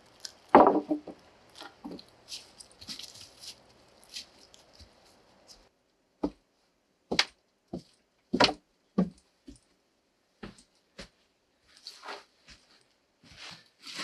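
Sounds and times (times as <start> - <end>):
wooden planks bumping: 0.5 - 2.0, 8.3 - 9.2
footsteps on wooden steps: 6.2 - 6.4, 7.1 - 9.6, 10.4 - 11.2.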